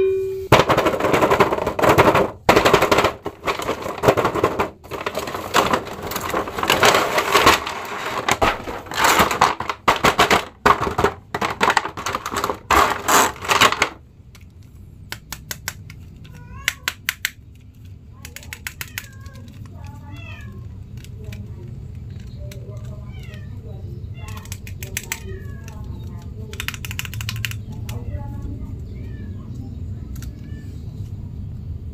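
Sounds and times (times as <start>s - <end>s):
plastic packaging crinkling: 0.6s - 14.0s.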